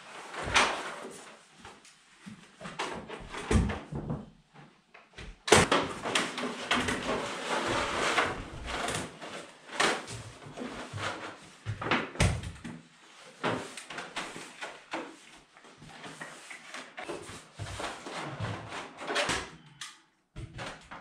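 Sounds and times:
rustling and scraping: 0:05.6 - 0:11.9, 0:12.8 - 0:19.6.

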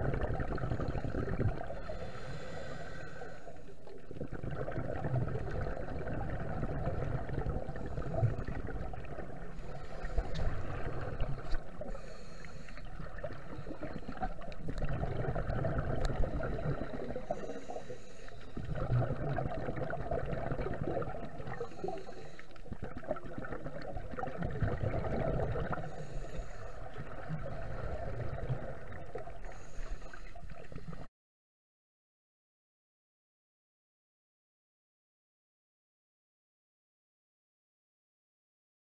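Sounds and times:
exhaled air bubbling underwater: 0:00.0 - 0:31.1.

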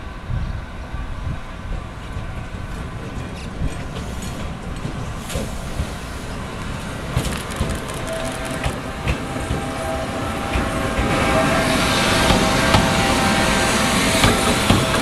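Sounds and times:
electric train whine: 0:00.0 - 0:15.0
train wheels clicking over joints: 0:01.7 - 0:09.9, 0:13.9 - 0:15.0.

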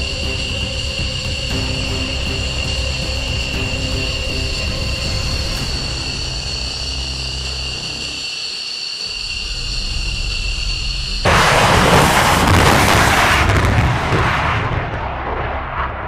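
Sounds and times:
jet engines whining: 0:00.0 - 0:16.0
afterburner roar: 0:09.1 - 0:16.0.

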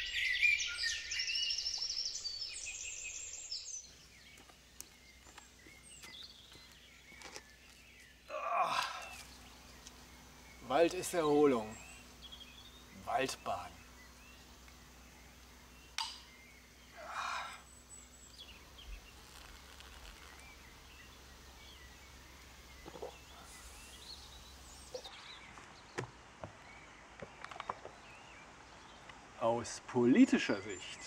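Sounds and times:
faint bird calls: 0:00.0 - 0:29.1.

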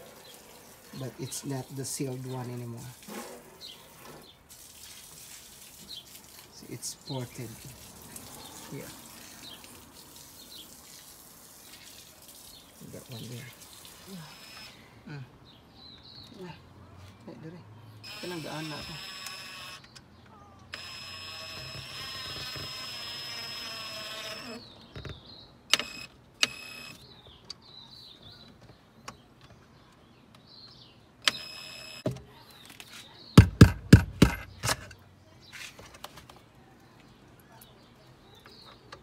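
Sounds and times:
cordless drill motor whine: 0:14.2 - 0:14.8, 0:18.0 - 0:19.8, 0:20.7 - 0:24.6, 0:25.7 - 0:27.0, 0:31.3 - 0:32.2
sharp clicks: 0:30.7 - 0:32.1.

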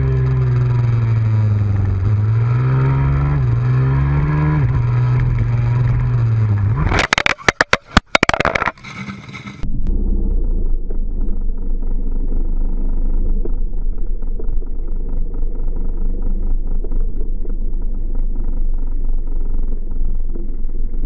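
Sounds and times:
motorcycle engine rumble: 0:00.0 - 0:21.0.

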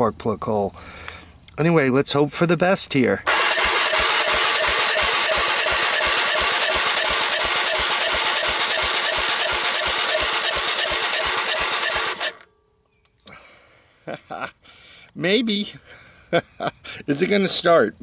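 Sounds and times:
electric starter cranking engine: 0:03.3 - 0:12.4.

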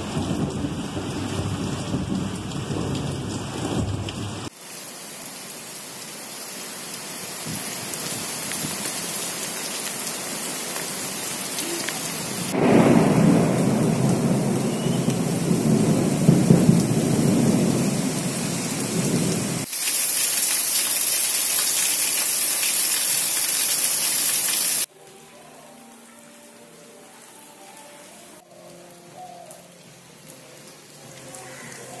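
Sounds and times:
thunder rumbling: 0:00.0 - 0:04.5, 0:12.3 - 0:19.7
heavy rain pouring: 0:00.0 - 0:24.9, 0:25.6 - 0:32.0.

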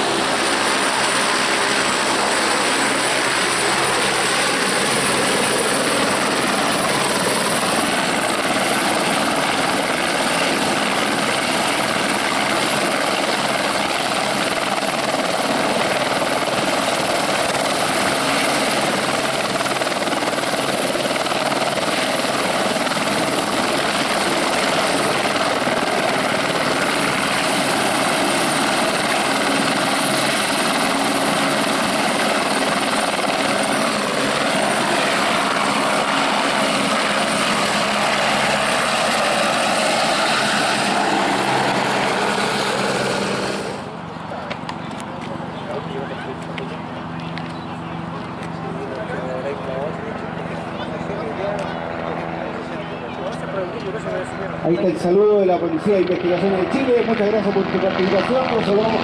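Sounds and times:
helicopter engine whine and rotor: 0:00.0 - 0:59.0.

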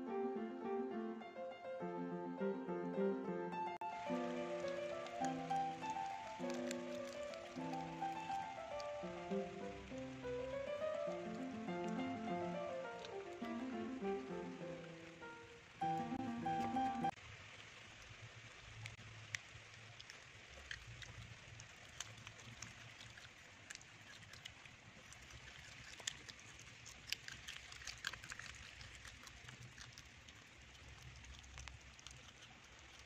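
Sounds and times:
dog chewing leaves: 0:03.8 - 0:14.9, 0:15.8 - 0:17.2, 0:20.0 - 0:33.0.

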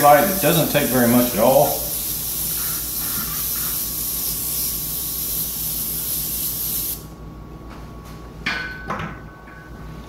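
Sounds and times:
airbrush hissing: 0:00.0 - 0:07.1.

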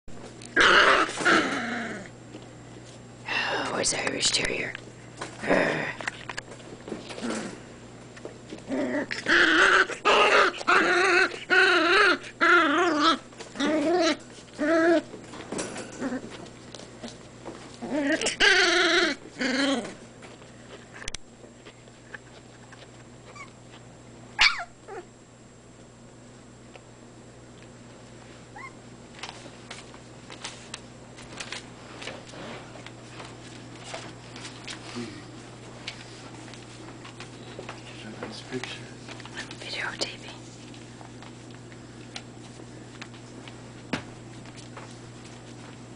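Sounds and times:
puppy whimpering: 0:08.7 - 0:15.1, 0:16.0 - 0:16.4, 0:17.8 - 0:20.0, 0:23.2 - 0:23.6, 0:24.4 - 0:25.1, 0:28.5 - 0:28.8
puppy squeak: 0:24.4 - 0:25.0, 0:28.6 - 0:28.8.

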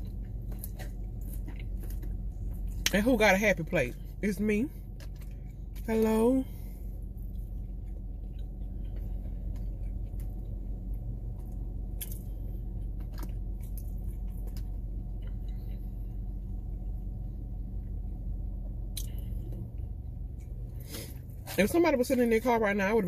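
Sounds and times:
person chewing: 0:00.0 - 0:02.9, 0:06.9 - 0:16.8
low rumble inside car: 0:00.0 - 0:23.0.

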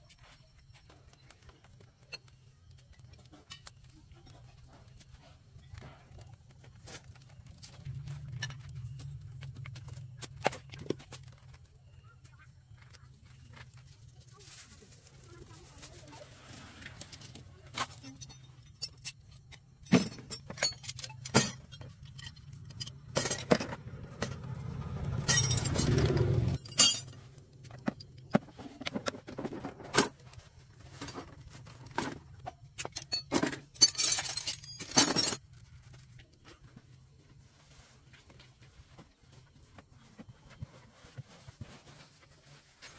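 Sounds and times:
rustling and scraping: 0:00.0 - 0:42.9
metal hand tools clinking: 0:17.7 - 0:24.3, 0:25.0 - 0:28.3, 0:32.8 - 0:35.4.

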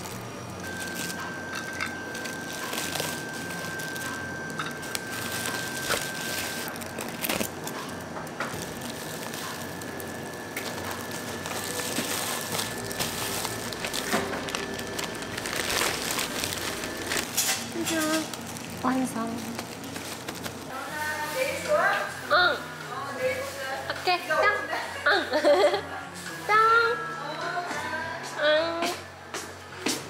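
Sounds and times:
foil and plastic bags crinkling: 0:00.0 - 0:22.1.

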